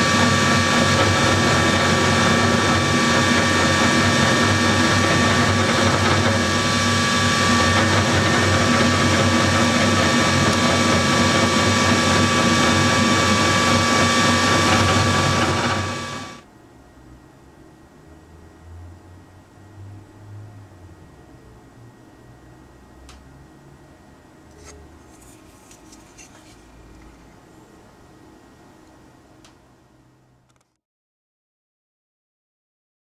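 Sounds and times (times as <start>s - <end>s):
bit cutting wood: 0.0s - 16.4s
mill spindle whine: 0.0s - 16.5s.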